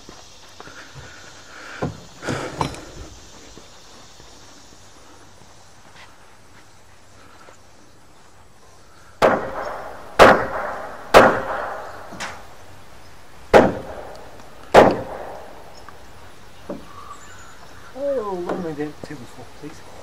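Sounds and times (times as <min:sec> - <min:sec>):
hammer striking wood: 0:14.8 - 0:15.3.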